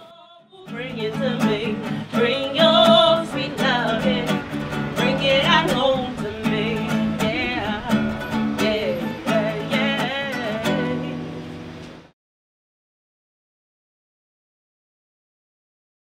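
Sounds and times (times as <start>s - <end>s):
woman singing: 0.0s - 11.4s
strummed guitar: 0.0s - 12.1s.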